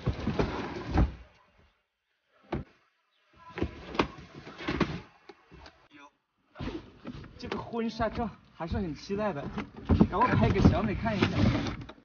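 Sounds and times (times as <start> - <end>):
cardboard box scraping and sliding: 0.0 - 1.2, 10.3 - 11.9.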